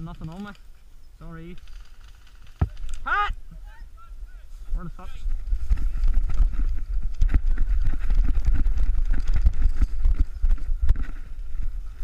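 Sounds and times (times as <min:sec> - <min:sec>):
running footsteps in grass: 0:04.5 - 0:12.0.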